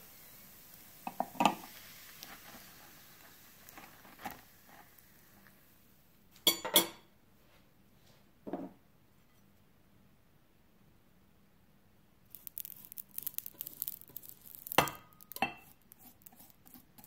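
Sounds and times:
knife scraping waffle iron plate: 14.8 - 17.0.

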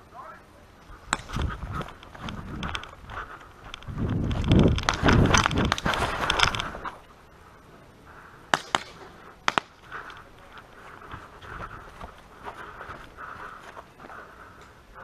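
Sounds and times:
wind on microphone: 0.9 - 7.0
sharp cracks: 1.0 - 7.0, 8.4 - 10.7
footsteps running on grass: 1.1 - 7.0, 9.8 - 14.3.

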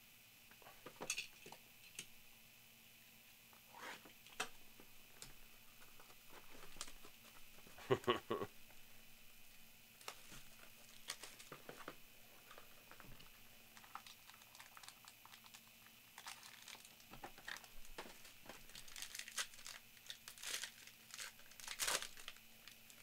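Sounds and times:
plastic shrink-wrap crinkling: 5.2 - 7.6, 10.0 - 23.0
foil pack tearing open: 10.0 - 11.6, 12.5 - 23.0.

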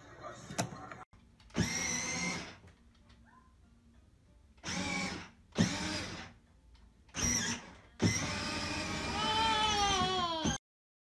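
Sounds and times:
electric motor whine: 7.2 - 10.6.

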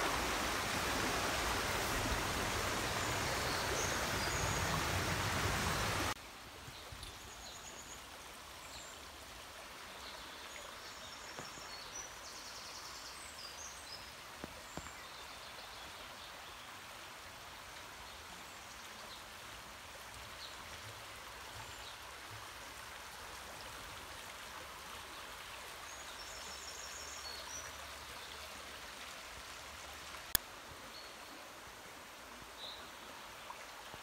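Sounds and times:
stream flowing over stones: 0.0 - 34.0.

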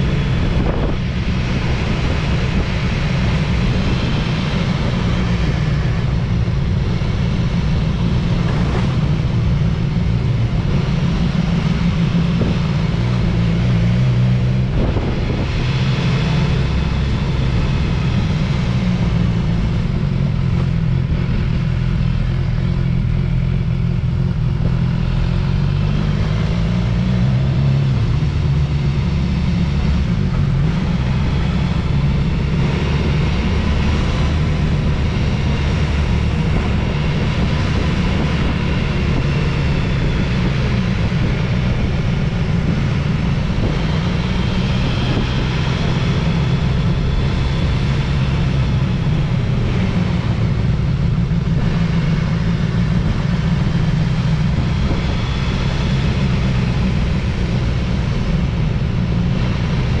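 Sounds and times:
motorcycle engine running: 0.0 - 60.0
wind and road noise: 0.0 - 60.0.

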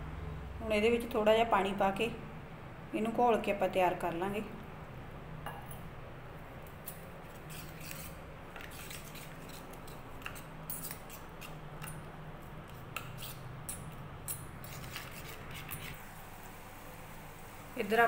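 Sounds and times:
spoon scraping metal bowl: 6.8 - 12.0, 12.6 - 16.0.

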